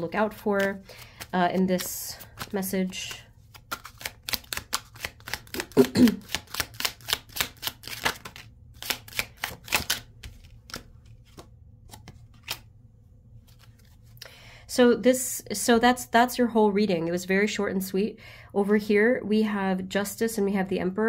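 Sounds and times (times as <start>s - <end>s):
cards shuffling clicks: 0.3s - 12.7s, 13.4s - 14.2s.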